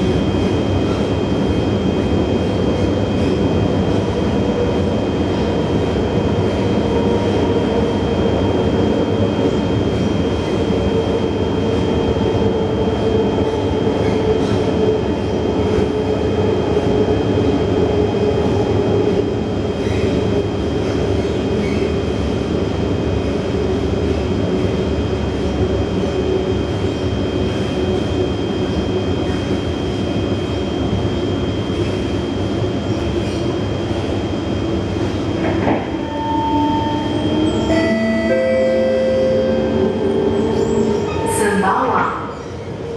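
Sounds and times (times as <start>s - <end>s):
constant ringing tones: 37.6s - 41.0s.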